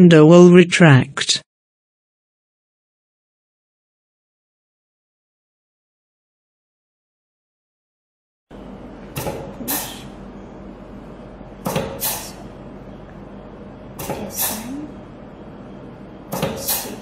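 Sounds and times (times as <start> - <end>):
steady low hum: 8.5 - 17.0
short sharp bursts of air: 9.2 - 10.2, 11.6 - 12.5, 14.0 - 14.8, 16.3 - 17.0.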